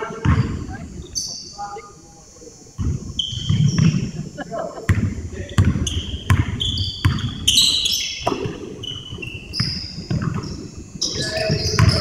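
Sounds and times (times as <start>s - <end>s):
sneakers squeaking on court: 0.0s - 1.6s, 2.8s - 4.2s, 4.9s - 12.0s
basketball bouncing on wood floor: 0.2s - 0.6s, 4.9s - 7.5s, 9.6s - 10.5s.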